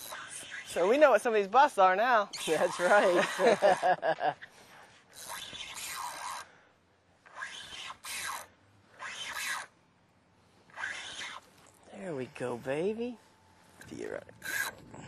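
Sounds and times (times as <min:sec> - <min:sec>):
fishing reel rasping: 0:00.0 - 0:01.2, 0:05.1 - 0:06.6, 0:07.3 - 0:09.8, 0:10.7 - 0:11.4, 0:14.3 - 0:14.8.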